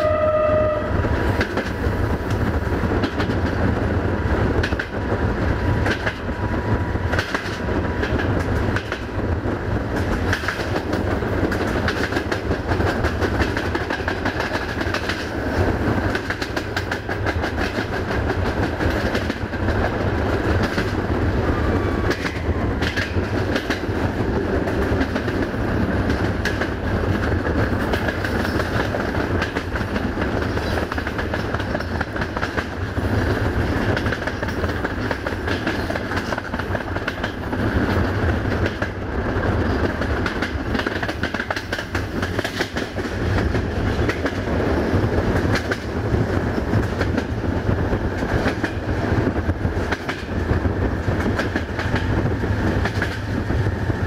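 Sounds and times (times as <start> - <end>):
train rumbling: 0.0 - 54.0
wheels clicking over rail joints: 22.0 - 54.0.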